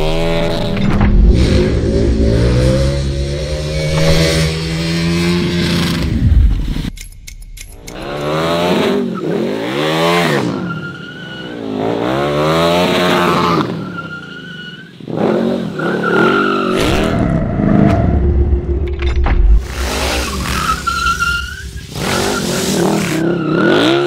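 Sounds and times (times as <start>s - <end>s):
motorcycle engine revving: 0.0s - 7.0s
tyre squeal: 10.3s - 11.8s, 13.5s - 15.0s, 19.9s - 24.0s.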